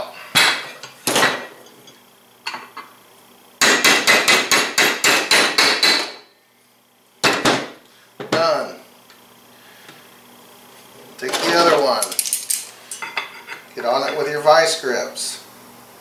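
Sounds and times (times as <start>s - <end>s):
hammer striking metal punch: 3.6s - 6.2s.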